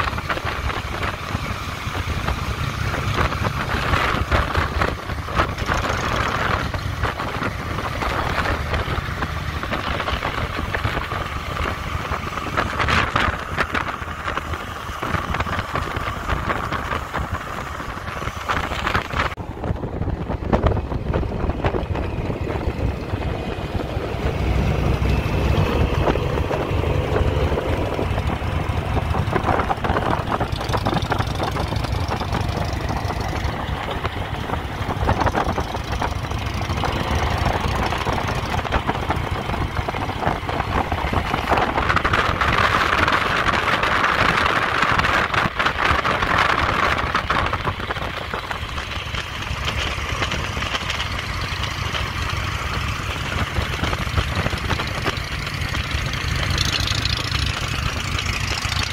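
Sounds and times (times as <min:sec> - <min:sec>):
motorcycle engine running: 0:00.0 - 0:58.9.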